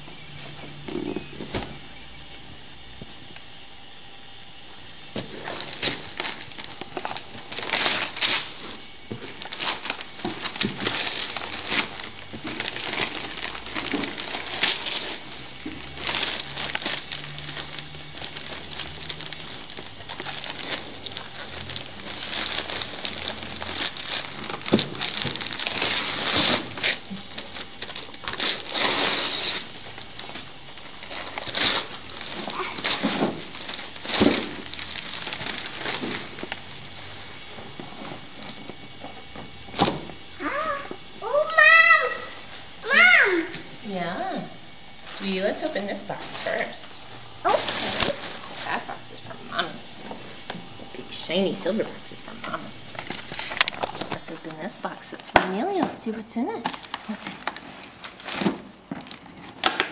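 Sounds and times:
wrapping paper crinkling and tearing: 5.2s - 39.3s, 46.2s - 50.4s, 51.1s - 59.9s.

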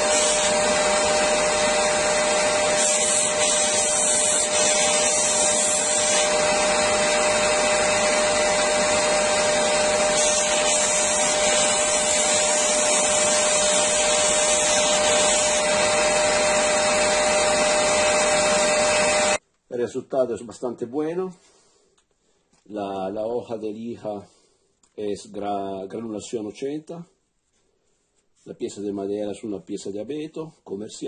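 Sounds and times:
sander motor running: 0.0s - 19.4s
vacuum cleaner running: 0.0s - 19.4s
wood being sanded: 0.0s - 19.4s.

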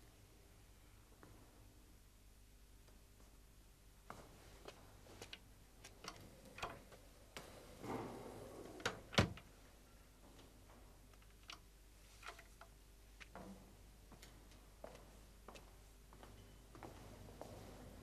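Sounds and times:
faint clicks and taps: 4.1s - 7.6s, 10.3s - 15.7s.

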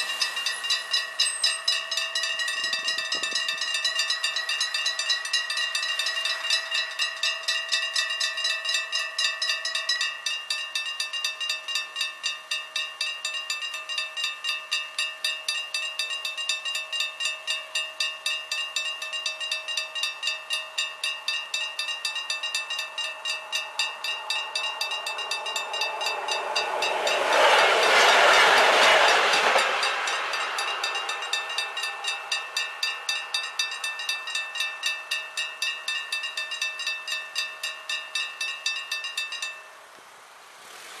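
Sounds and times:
level crossing bell ringing: 0.0s - 39.8s.

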